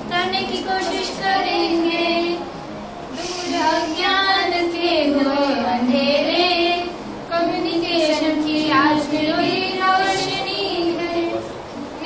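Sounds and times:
woman singing into microphone: 3.2s - 11.4s.

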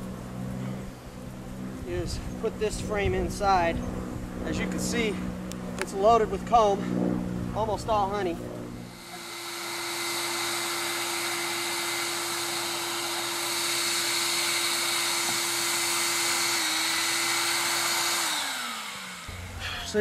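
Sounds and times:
shop vacuum running: 7.6s - 20.0s.

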